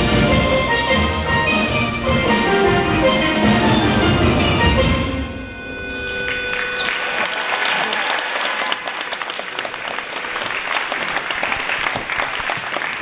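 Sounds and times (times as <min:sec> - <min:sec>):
steel pan chord: 0:00.0 - 0:07.0
audience applauding: 0:06.3 - 0:13.0.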